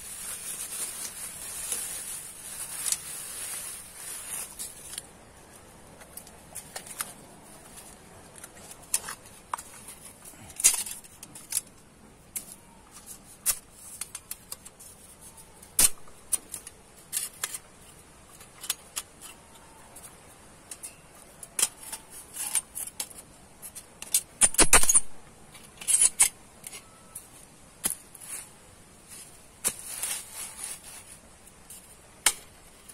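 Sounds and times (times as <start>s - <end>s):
metal parts clinking: 7.8s - 14.6s, 20.6s - 28.0s.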